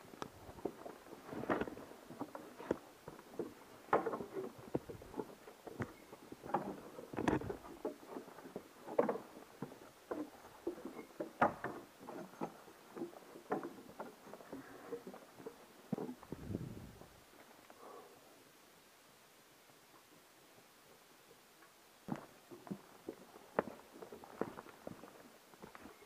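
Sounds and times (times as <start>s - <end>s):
boots knocking on wooden ladder: 3.4s - 5.1s.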